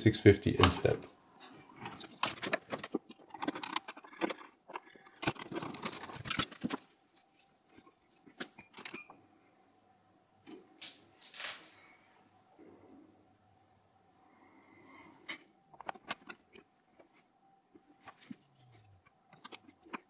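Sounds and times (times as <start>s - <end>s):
computer parts clicking and rattling: 1.7s - 7.2s.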